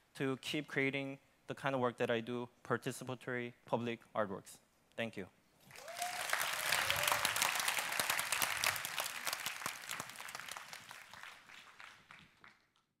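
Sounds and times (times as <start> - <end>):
audience applauding: 5.7 - 12.8.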